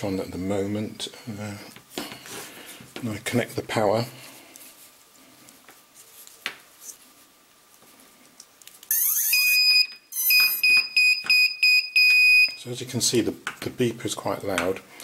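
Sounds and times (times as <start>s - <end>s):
alarm buzzer beeping: 8.9s - 12.6s.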